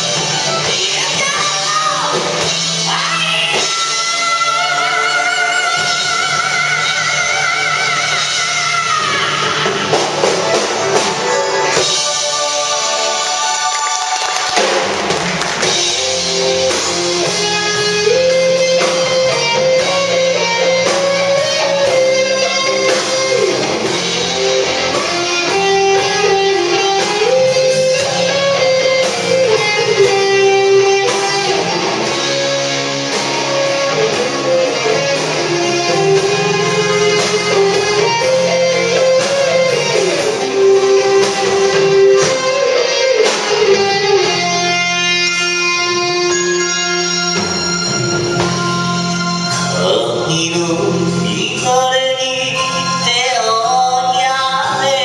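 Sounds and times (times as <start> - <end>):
drum kit: 0.0 - 55.0
electric guitars strumming: 0.0 - 55.0
keyboard: 0.0 - 55.0.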